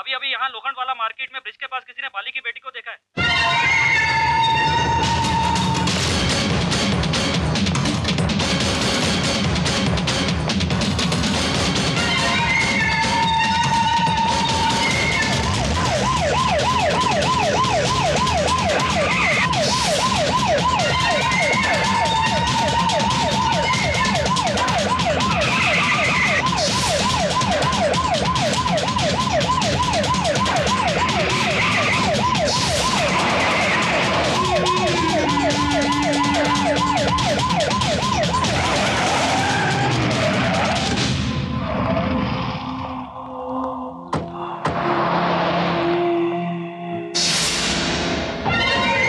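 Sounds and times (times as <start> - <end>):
police siren yelping: 3.2 - 6.2, 12.0 - 41.0
music beat: 4.9 - 41.2.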